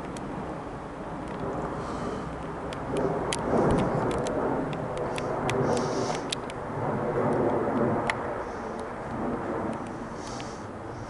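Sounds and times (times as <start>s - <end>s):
jet engines rumbling overhead: 0.0s - 11.0s.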